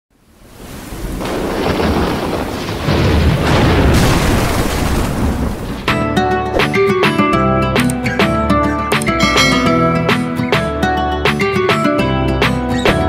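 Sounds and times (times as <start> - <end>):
rain hissing: 0.2 - 5.9
rumble of thunder: 0.9 - 5.9
plucked guitar music: 5.9 - 13.0.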